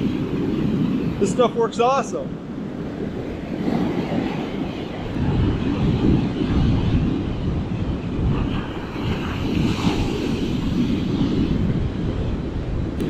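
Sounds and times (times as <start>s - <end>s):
breaking surf hissing: 0.0s - 2.3s
wind buffeting microphone: 0.0s - 13.0s.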